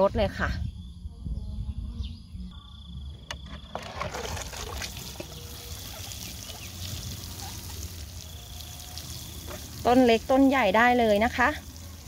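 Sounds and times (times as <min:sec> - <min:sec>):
watering can spray on soil: 0:03.7 - 0:12.0.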